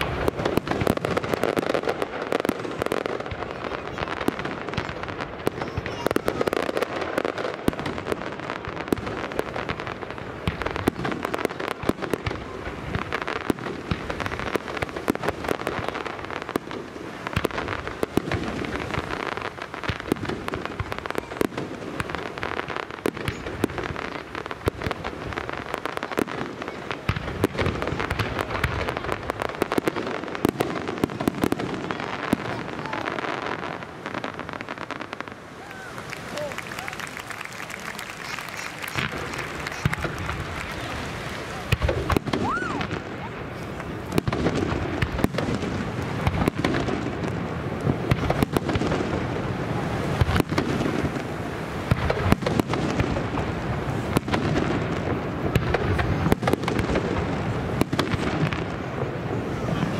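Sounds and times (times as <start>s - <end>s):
fireworks bursting: 0.0s - 59.9s
fireworks crackling: 0.0s - 59.9s.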